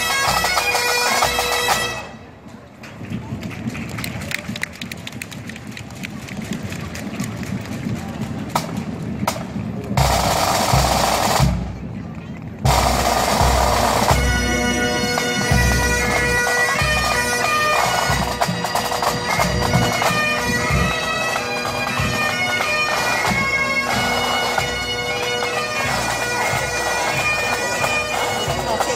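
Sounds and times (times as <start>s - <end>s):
bagpipes playing a tune: 0.0s - 2.2s, 12.7s - 28.9s.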